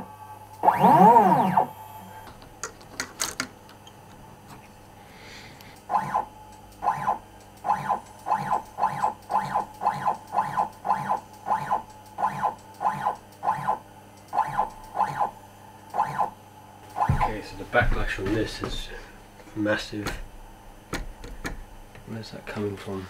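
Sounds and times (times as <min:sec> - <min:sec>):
stepper motor whine: 0:00.0 - 0:02.3, 0:05.8 - 0:17.5.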